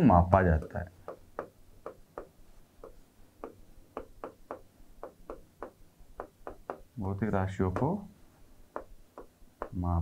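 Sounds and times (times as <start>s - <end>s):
stylus tapping on glass: 1.0s - 7.0s, 7.7s - 8.1s, 8.7s - 9.8s.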